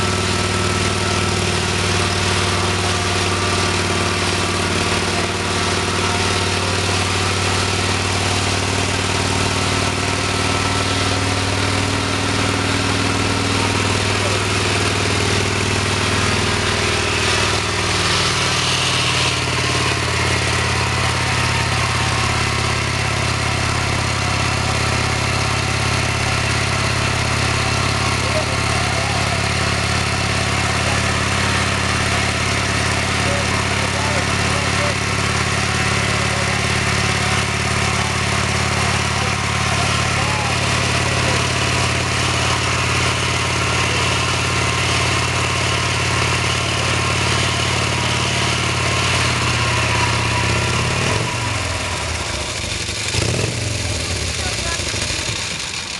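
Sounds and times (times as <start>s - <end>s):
motorcycle engine idling: 0.0s - 55.9s.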